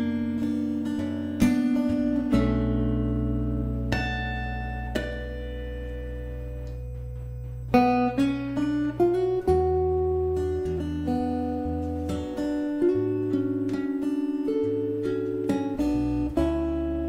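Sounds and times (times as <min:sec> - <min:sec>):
fingerstyle acoustic guitar: 0:00.0 - 0:17.0.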